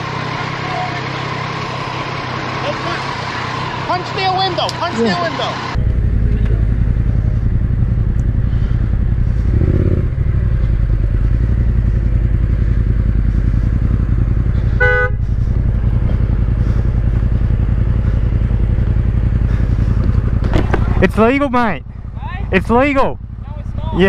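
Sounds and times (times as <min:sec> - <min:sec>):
motorcycle engine rumbling: 0:00.0 - 0:24.0
horn toot: 0:14.6 - 0:15.4.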